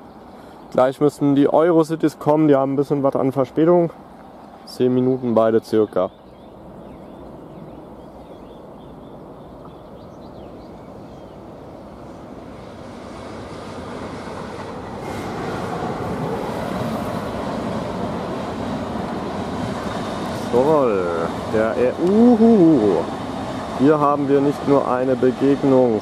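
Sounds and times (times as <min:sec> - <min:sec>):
train wheels rumbling on rails: 0:07.2 - 0:26.0.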